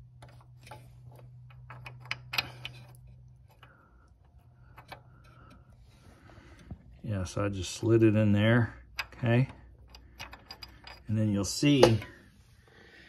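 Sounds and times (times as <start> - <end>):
low steady hum: 0.0 - 13.0
metal clicks and scrapes: 0.1 - 5.8, 8.9 - 12.0.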